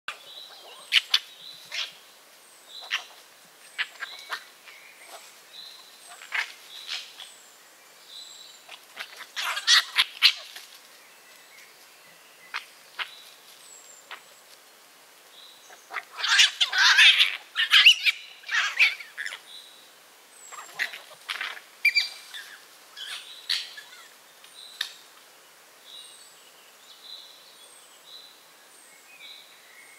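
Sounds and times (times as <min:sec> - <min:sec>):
fox cubs squealing and chattering: 0:00.1 - 0:02.0, 0:02.7 - 0:07.4, 0:08.6 - 0:10.8, 0:15.7 - 0:19.5, 0:20.4 - 0:24.2.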